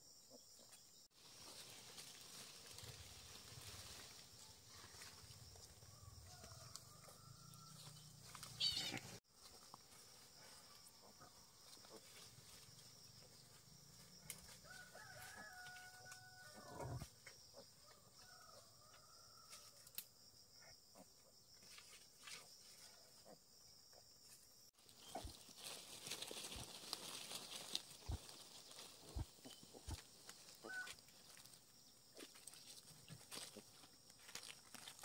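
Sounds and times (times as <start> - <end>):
faint rooster crow: 5.6 - 8.8, 14.4 - 17.1, 17.8 - 20.0, 30.5 - 31.0.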